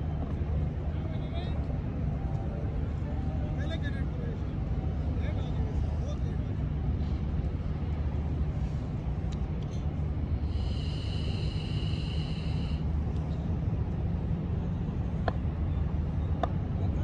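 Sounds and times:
low outdoor rumble: 0.0 - 17.0
high whistle-like tone: 10.6 - 12.8.

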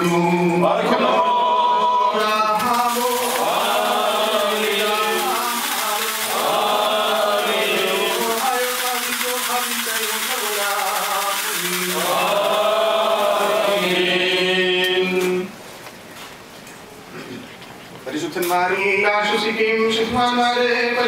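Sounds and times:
men chanting a hymn: 0.0 - 15.6.

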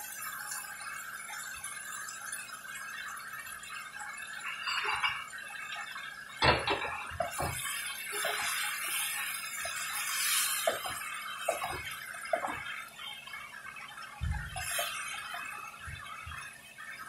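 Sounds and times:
food sizzling in a pan: 0.0 - 17.0
spoon stirring and scraping: 7.2 - 12.6, 14.5 - 15.4.

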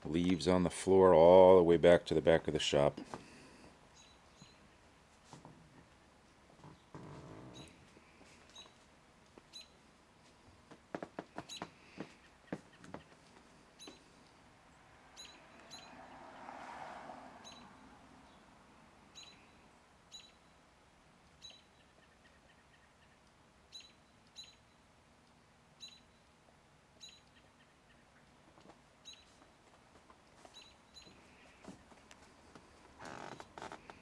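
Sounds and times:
faint high-pitched chirps: 3.9 - 4.8, 15.1 - 16.0, 17.4 - 17.7, 19.1 - 20.6, 21.4 - 24.9, 25.8 - 26.4, 27.0 - 28.2.

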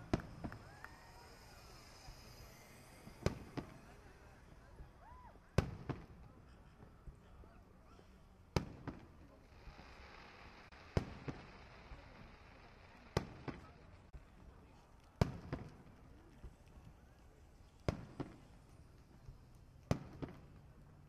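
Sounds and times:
firework shells booming: 0.0 - 4.2, 8.5 - 14.1, 15.1 - 16.0, 19.8 - 20.7
firework hiss: 0.0 - 6.2, 8.1 - 14.2
small firework pops: 0.0 - 7.3, 8.5 - 21.0.

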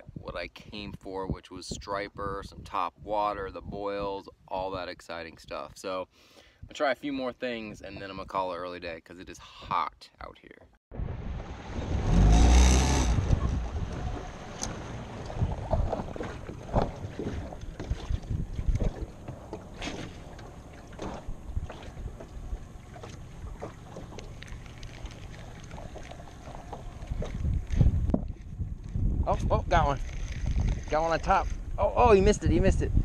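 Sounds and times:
wind buffeting microphone: 0.0 - 5.7, 10.9 - 33.0
water slapping against hull: 12.3 - 29.0.

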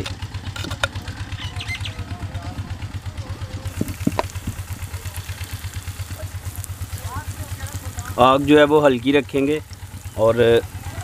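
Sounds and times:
engine thudding steadily: 0.0 - 11.0.

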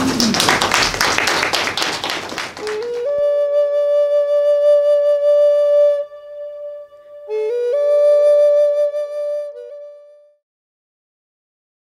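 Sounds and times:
audience applauding: 0.0 - 3.2
flute-like outro music: 2.6 - 10.4.

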